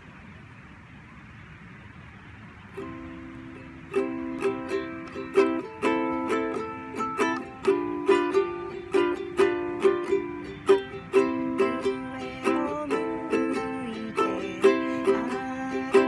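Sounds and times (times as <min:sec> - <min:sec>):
ukulele strumming: 0:02.8 - 0:16.0.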